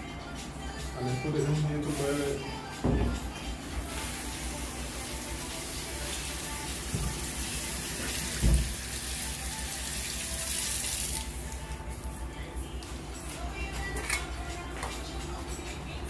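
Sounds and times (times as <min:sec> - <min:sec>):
tap running into metal sink: 0:08.1 - 0:08.8.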